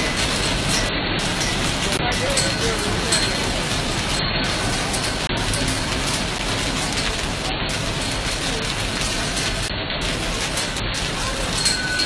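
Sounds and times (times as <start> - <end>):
hail and rain on paving: 2.7 - 11.9.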